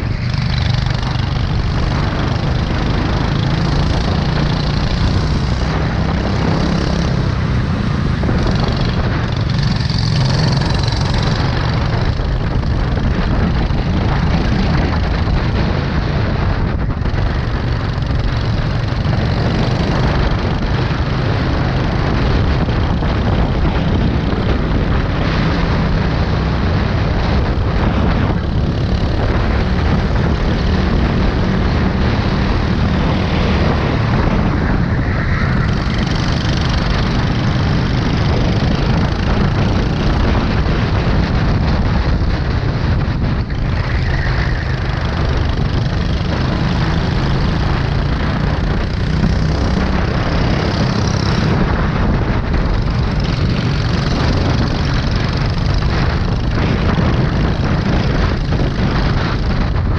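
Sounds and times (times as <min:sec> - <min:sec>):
dense rushing noise: 0:00.0 - 0:59.9
go-kart engine racing: 0:00.0 - 0:59.9.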